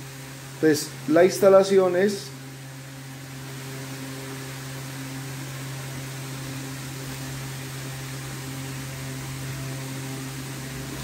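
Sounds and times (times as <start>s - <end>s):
even hiss: 0.0s - 2.5s.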